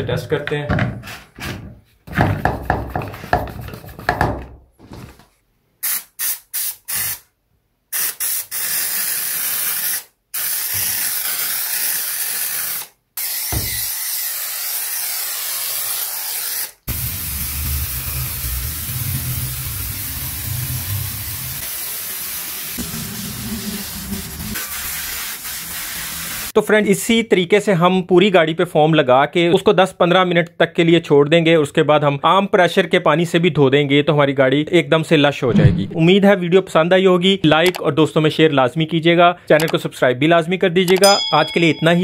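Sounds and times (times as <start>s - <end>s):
sprayer hissing: 16.9s - 26.5s
foam sprayer spraying: 16.9s - 26.6s
low rumble: 35.4s - 36.1s.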